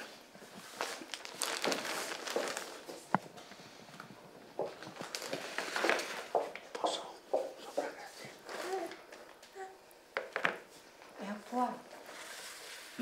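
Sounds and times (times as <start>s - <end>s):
rustling handling noise: 0.0s - 6.6s, 7.4s - 9.7s.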